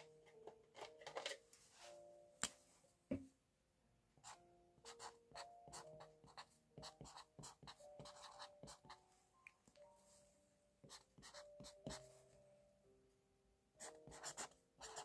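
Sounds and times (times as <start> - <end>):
pen scratching on paper: 4.2 - 9.0, 10.8 - 12.1, 13.8 - 15.0.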